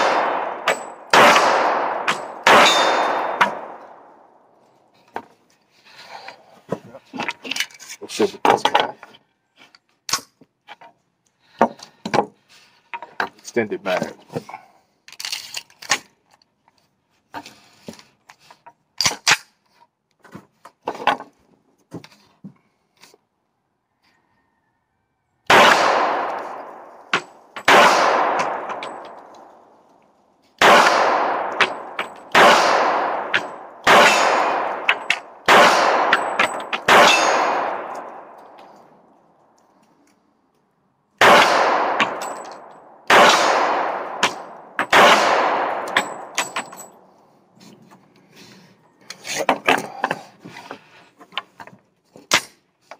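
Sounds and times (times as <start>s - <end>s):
pistol shots with echo: 0.0s - 4.5s, 25.5s - 29.5s, 30.6s - 38.4s, 41.2s - 47.0s.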